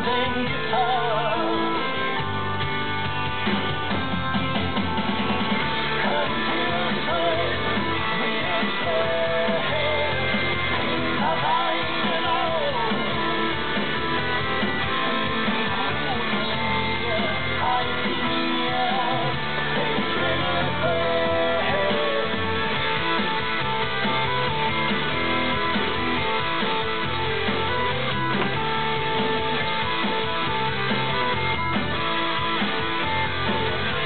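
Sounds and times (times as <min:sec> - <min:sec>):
person singing: 0:00.0 - 0:02.2, 0:05.8 - 0:13.6, 0:14.9 - 0:22.8
rock guitar: 0:00.0 - 0:34.0.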